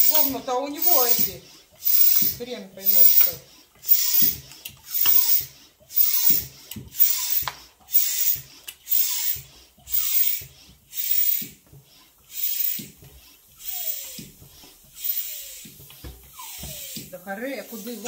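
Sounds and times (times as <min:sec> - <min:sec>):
hand pump hissing air: 0:00.0 - 0:18.0.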